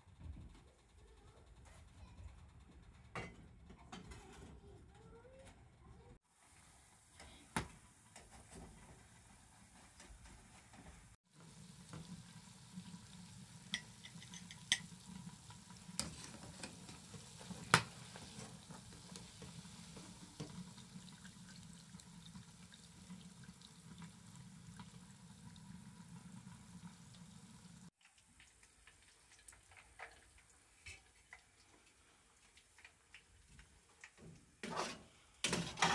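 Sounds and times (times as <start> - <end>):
potatoes deep-frying in oil: 11.2 - 35.9.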